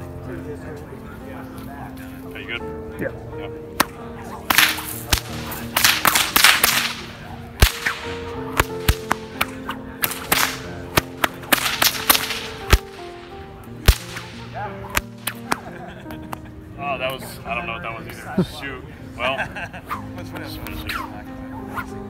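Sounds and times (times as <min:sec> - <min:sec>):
bullwhip cracking: 0:03.8 - 0:13.0, 0:13.8 - 0:15.7
whip swishing through air: 0:03.8 - 0:13.0, 0:13.8 - 0:15.7.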